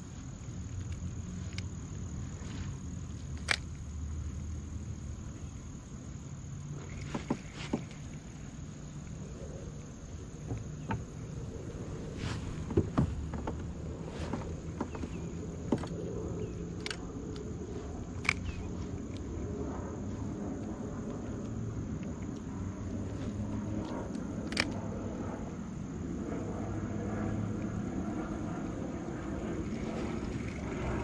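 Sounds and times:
insect chorus chirring: 0:00.0 - 0:31.0
water rumble: 0:00.0 - 0:31.0
wind: 0:00.0 - 0:31.0
kayak and fishing gear clicks: 0:00.1 - 0:04.4, 0:06.8 - 0:09.1, 0:12.4 - 0:19.5, 0:20.6 - 0:22.6, 0:23.4 - 0:25.0, 0:28.6 - 0:31.0.

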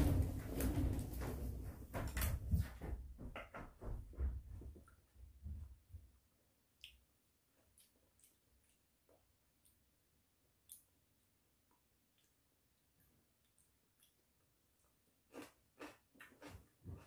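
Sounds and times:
dull knocks and thumps: 0:00.0 - 0:04.9.

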